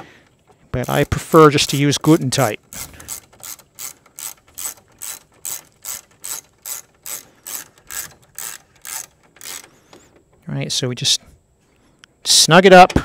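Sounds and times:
socket ratchet clicking: 0.8s - 10.0s.

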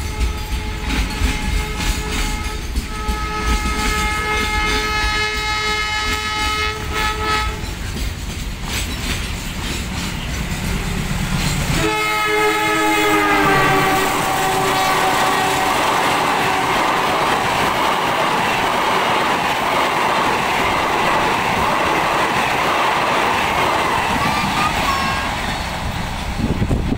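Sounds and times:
locomotive horn blast: 0.0s - 7.7s, 11.7s - 17.2s
freight wagons clattering on rails: 0.0s - 12.7s.

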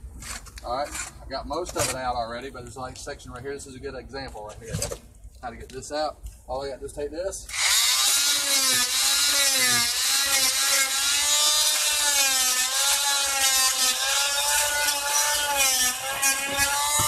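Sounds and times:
oscillating multi-tool cutting wood: 7.5s - 17.0s.

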